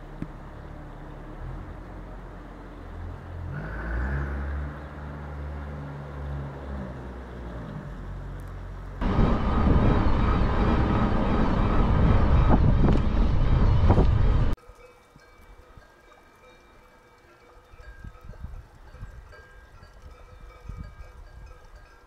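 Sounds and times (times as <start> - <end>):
low motor hum: 0.0 - 14.6
bike rolling noise: 8.1 - 14.6
wind rush: 9.0 - 14.6.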